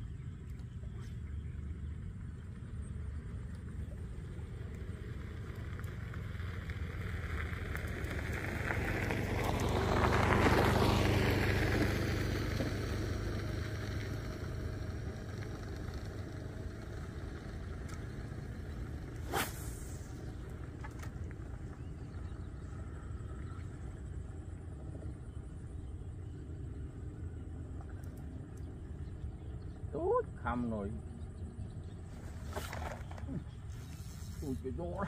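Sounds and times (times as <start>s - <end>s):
engine humming: 0.0s - 35.0s
vehicle passing by: 4.2s - 24.6s.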